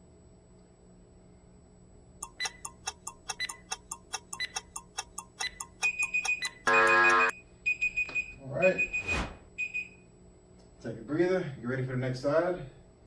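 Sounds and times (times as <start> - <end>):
clock ticking fast: 2.2 - 6.6
steady beeping: 2.2 - 10.0
loud buzzer: 6.6 - 7.3.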